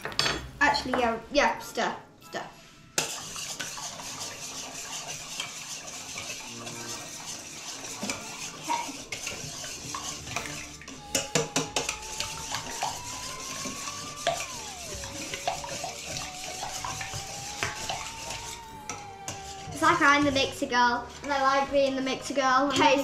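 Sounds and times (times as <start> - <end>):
whisk scraping metal bowl: 3.0 - 10.9.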